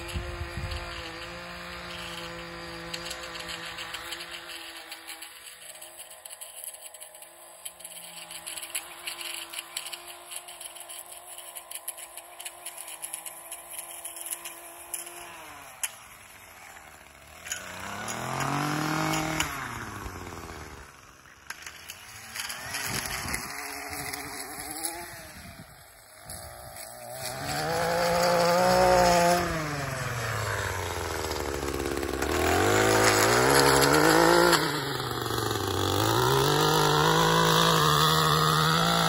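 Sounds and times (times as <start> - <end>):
two-stroke edger engine revving: 0.0 - 39.0.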